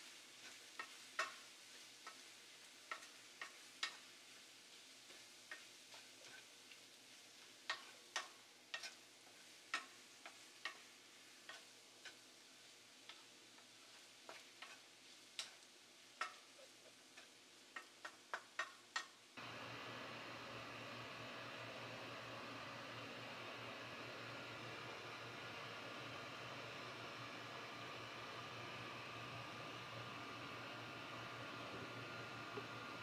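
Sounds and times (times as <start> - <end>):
faint sizzle: 0.0 - 33.0
spatula tapping a frying pan: 0.4 - 4.1, 5.5 - 6.5, 7.6 - 12.2, 13.0 - 14.8, 15.4 - 15.6, 16.2 - 19.2.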